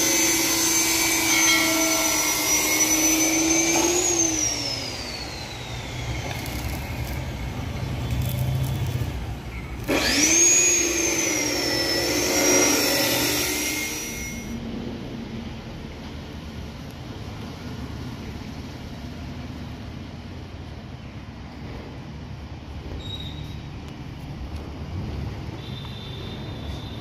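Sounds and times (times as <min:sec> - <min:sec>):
chop saw cutting steel: 0:00.0 - 0:09.2, 0:09.8 - 0:14.6
angle grinder whining: 0:00.0 - 0:14.6.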